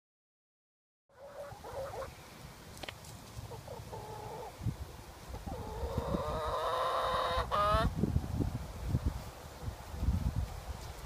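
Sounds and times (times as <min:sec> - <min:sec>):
chickens clucking and calling: 0:01.1 - 0:08.0.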